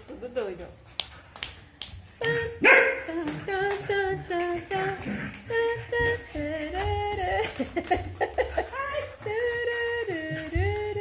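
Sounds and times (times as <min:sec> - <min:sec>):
person humming a tune: 0:02.2 - 0:11.0.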